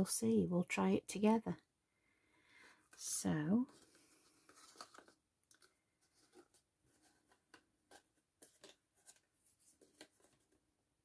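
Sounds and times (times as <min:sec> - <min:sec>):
cardstock clicks and rustles: 0:03.7 - 0:10.6.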